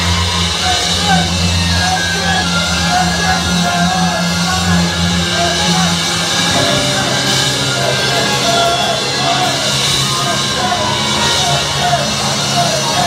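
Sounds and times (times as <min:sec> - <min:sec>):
electric guitar: 0:06.5 - 0:10.0.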